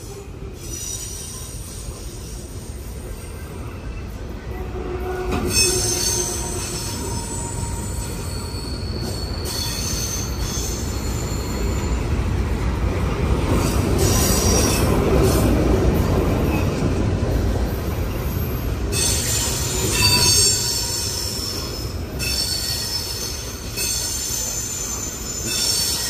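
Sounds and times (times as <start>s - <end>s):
train wheels rumbling on rails: 0.0s - 26.0s
high-pitched wheel squeal: 5.2s - 12.2s, 18.4s - 26.0s.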